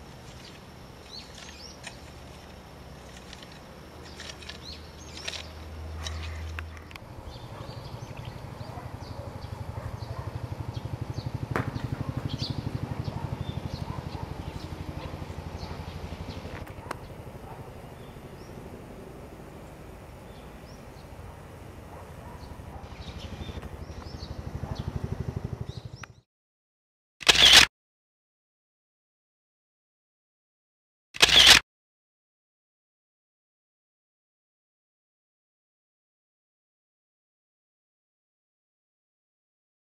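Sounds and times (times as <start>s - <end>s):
small birds chirping: 0.2s - 26.2s
sharp clicks: 3.0s - 7.1s, 31.2s - 31.6s
steady low rumble: 6.6s - 25.8s.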